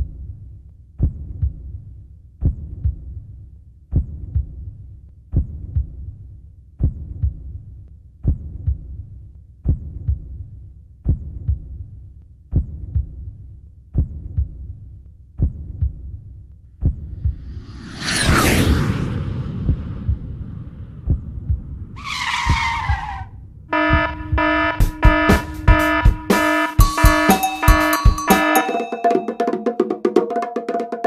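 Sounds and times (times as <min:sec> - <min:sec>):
heartbeat thumps: 0:01.0 - 0:01.8, 0:02.4 - 0:03.2, 0:03.9 - 0:04.7, 0:05.3 - 0:06.1, 0:06.8 - 0:07.6, 0:08.2 - 0:10.4, 0:11.0 - 0:11.8, 0:12.5 - 0:13.3, 0:14.0 - 0:14.8, 0:15.4 - 0:16.2, 0:16.8 - 0:17.7, 0:19.6 - 0:22.0, 0:23.7 - 0:28.6
low hum: 0:17.1 - 0:22.0, 0:23.2 - 0:26.3.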